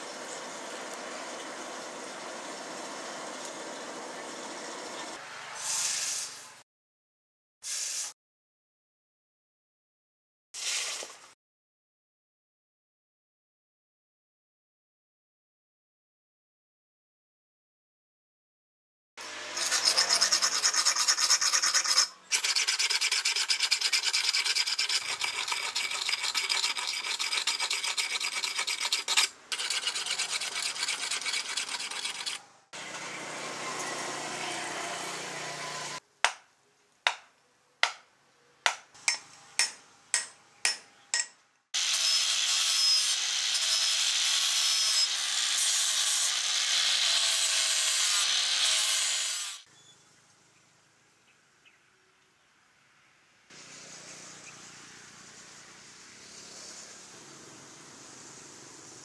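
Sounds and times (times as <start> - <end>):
file rasping on steel blade: 19.4 - 32.4
angle grinder running: 41.8 - 49.6.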